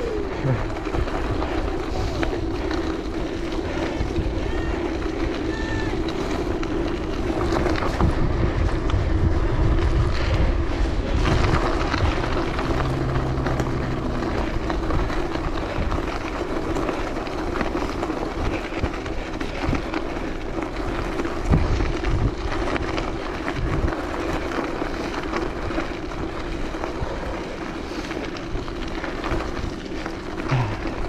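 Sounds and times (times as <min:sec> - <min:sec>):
wind on microphone: 0:00.0 - 0:25.0
bicycle tyres on gravel: 0:00.0 - 0:31.0
low thumps: 0:11.4 - 0:15.4.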